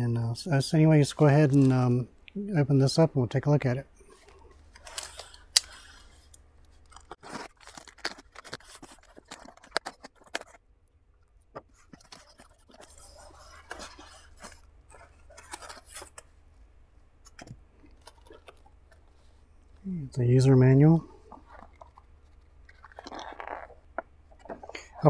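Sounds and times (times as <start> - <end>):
cardboard crackling and scraping: 4.8 - 10.6, 11.6 - 16.3
packing tape tearing: 4.8 - 10.6.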